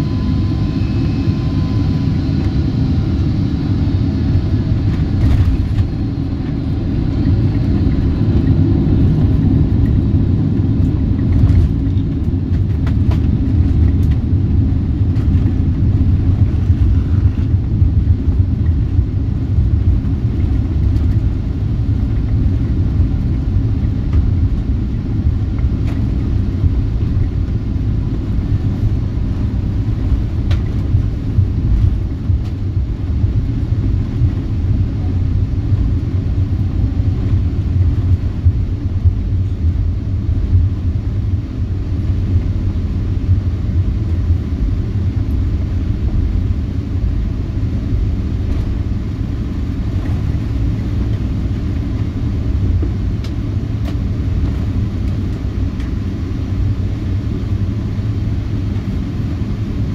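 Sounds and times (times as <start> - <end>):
faint high whine: 0.0 - 7.0
airliner cabin rumble: 0.0 - 59.9.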